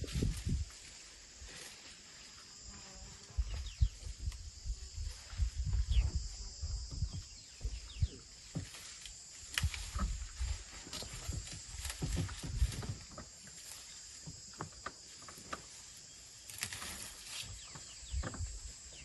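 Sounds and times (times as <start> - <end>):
rustling leaves: 0.0 - 6.4, 8.2 - 19.0
high insect drone: 0.0 - 19.0
cracking twigs: 8.8 - 13.8, 16.4 - 17.9.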